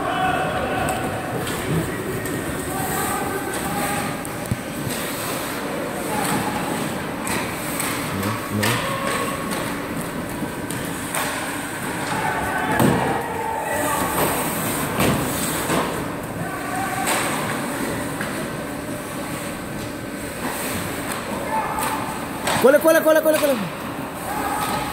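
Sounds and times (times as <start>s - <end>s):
spectators' voices: 0.0s - 9.9s
skates on ice: 0.9s - 13.0s.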